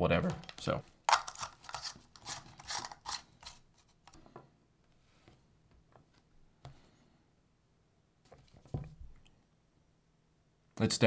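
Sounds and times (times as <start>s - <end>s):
plastic packaging rustling: 1.1s - 3.9s.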